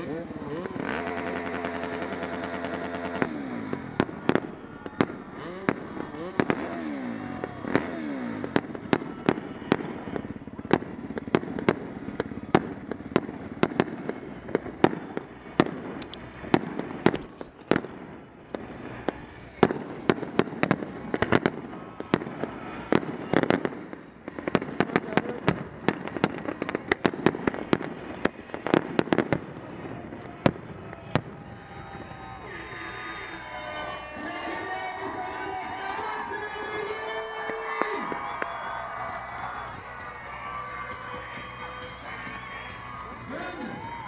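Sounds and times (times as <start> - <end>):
engines revving: 0.0 - 30.2.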